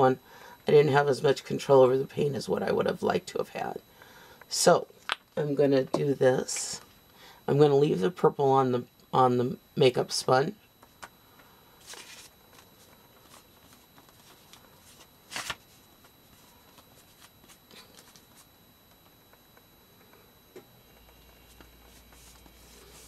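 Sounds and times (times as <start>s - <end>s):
paper rustling: 11.8s - 18.5s, 21.5s - 23.0s.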